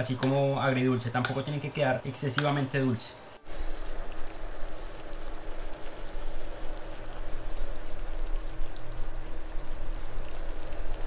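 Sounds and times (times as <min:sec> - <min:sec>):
faint steady hum: 0:00.0 - 0:11.0
sauce bubbling in a frying pan: 0:03.4 - 0:11.0.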